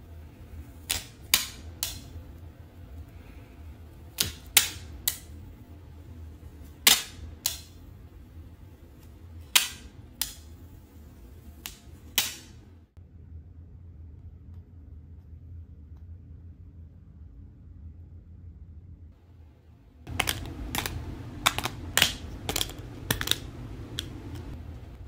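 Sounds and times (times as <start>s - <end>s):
plastic packaging clicking: 20.1s - 24.6s.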